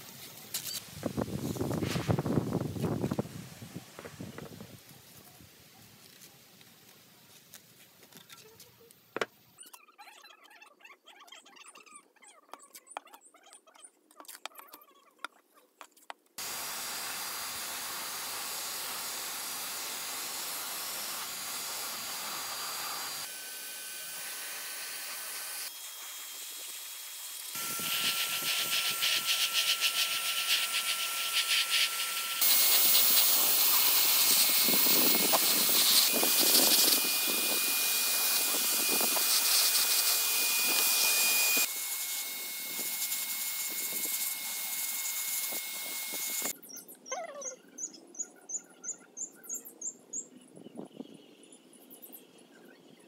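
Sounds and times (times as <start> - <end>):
paint spray gun hissing: 16.4 - 23.3, 24.1 - 46.5.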